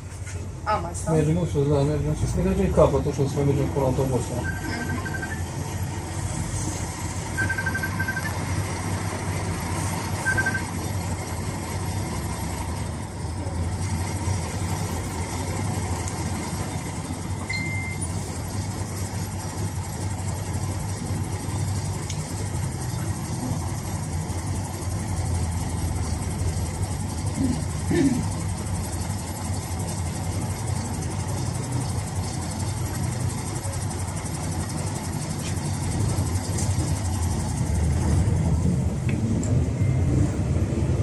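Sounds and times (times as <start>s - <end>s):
tram hum and rumble: 0.0s - 41.0s
brief higher tone: 4.4s - 5.4s
short high beeps: 4.4s - 5.5s, 7.4s - 8.4s, 10.2s - 10.8s, 17.5s - 18.1s.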